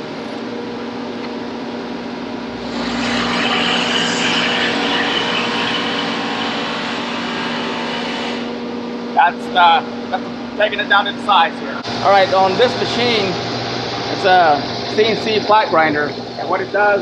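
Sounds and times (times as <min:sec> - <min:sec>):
grinder humming: 0:02.5 - 0:08.6, 0:09.6 - 0:17.0
hiss of grinding and coolant: 0:02.6 - 0:08.5.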